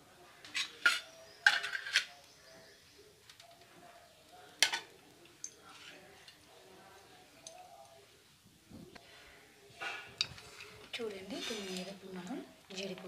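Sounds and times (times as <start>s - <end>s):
metal kitchen utensils clattering: 0.5s - 2.1s.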